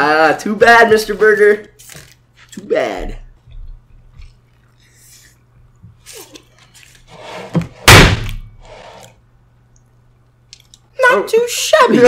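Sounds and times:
man chewing food: 0:03.3 - 0:07.0
loud thud: 0:07.8 - 0:08.5.

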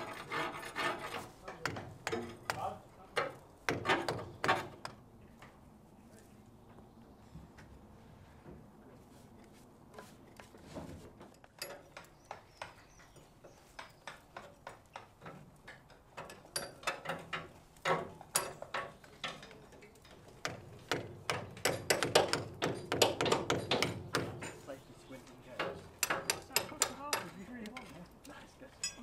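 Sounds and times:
hand tools knocking on rusty steel: 0:01.5 - 0:05.0, 0:11.4 - 0:24.7, 0:25.5 - 0:28.0.

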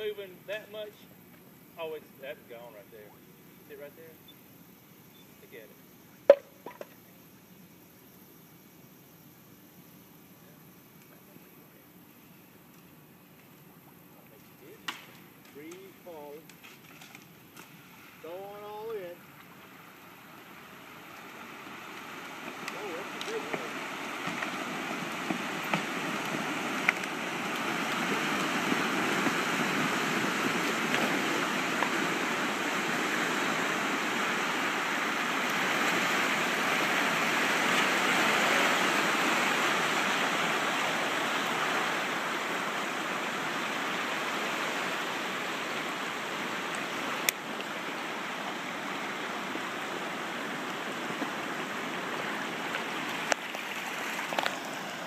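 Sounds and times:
sharp snaps: 0:14.4 - 0:17.7
swamp water gurgling and churning: 0:17.8 - 0:55.0.

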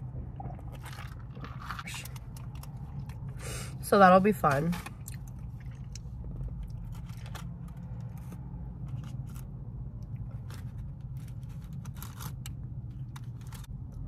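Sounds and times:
steady low hum: 0:00.0 - 0:14.0
paper crinkling and rustling: 0:10.3 - 0:13.7.

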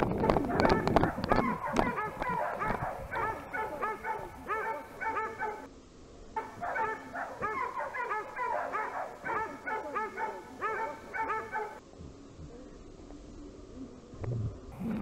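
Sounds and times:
dogs yelping: 0:00.1 - 0:05.7, 0:06.4 - 0:11.8.

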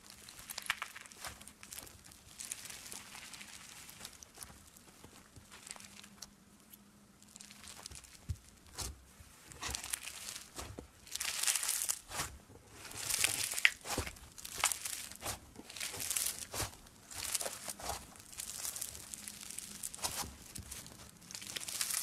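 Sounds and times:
slime crackling squishes: 0:00.0 - 0:22.0.

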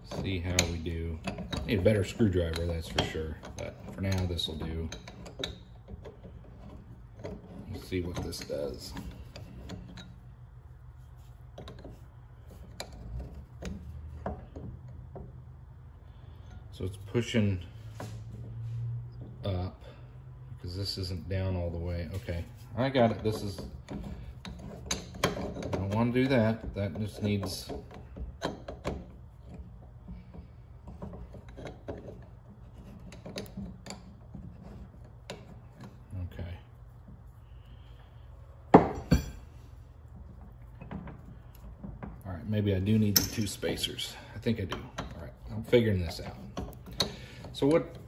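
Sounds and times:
low steady hum: 0:00.0 - 0:48.0
light metal clicks and clinks: 0:43.0 - 0:48.0.

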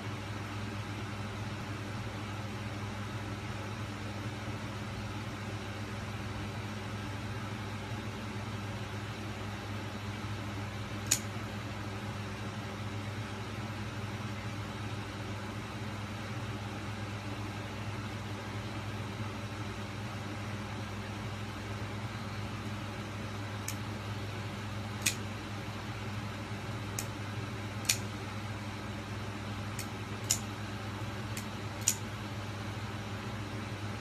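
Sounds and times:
steady low hum: 0:00.0 - 0:34.0
folding knife blade click: 0:11.0 - 0:11.3, 0:25.0 - 0:25.2, 0:27.8 - 0:28.0, 0:29.8 - 0:30.4, 0:31.4 - 0:32.0.

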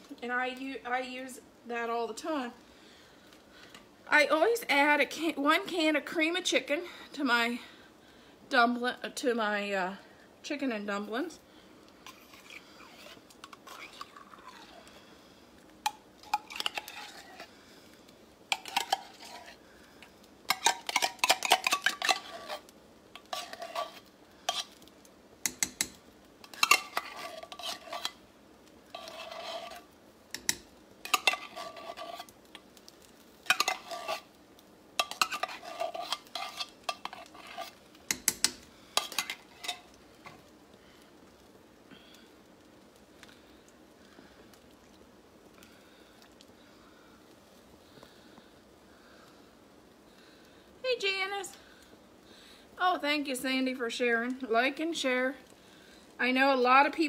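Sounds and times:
stirring in a pot: 0:11.4 - 0:41.5.

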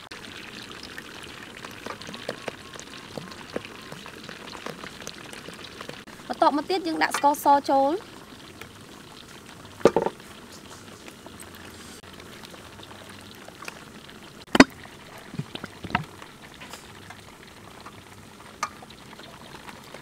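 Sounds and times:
sauce bubbling in a wok: 0:00.0 - 0:20.0.

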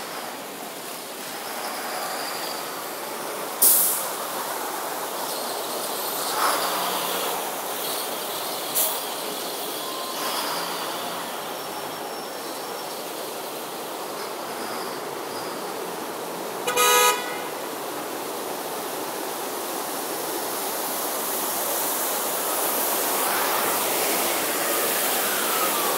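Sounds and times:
vehicles driving through water: 0:00.0 - 0:25.9
vehicle horn toot: 0:16.6 - 0:17.6.

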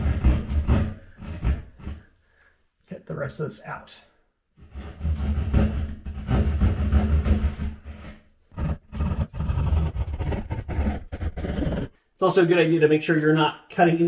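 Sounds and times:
saw cutting through drywall: 0:00.0 - 0:02.1, 0:04.6 - 0:11.9.

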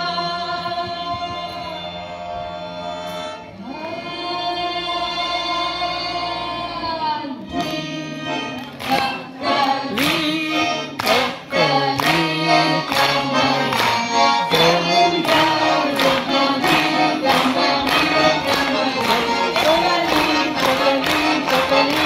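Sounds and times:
accordion: 0:00.0 - 0:22.0
violin: 0:00.0 - 0:22.0
audience clapping along: 0:08.5 - 0:22.0.

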